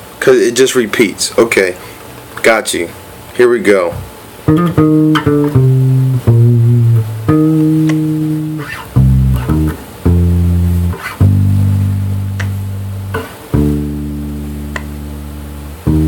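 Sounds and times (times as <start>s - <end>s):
electric bass guitar line: 3.9s - 16.0s.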